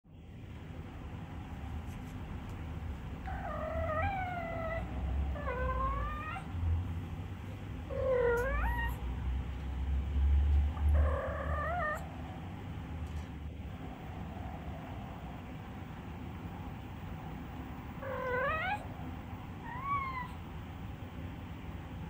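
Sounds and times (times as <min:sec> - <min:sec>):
cat meowing softly: 0:07.9 - 0:09.0, 0:18.0 - 0:18.9, 0:19.6 - 0:20.4
low rumble: 0:09.2 - 0:19.7.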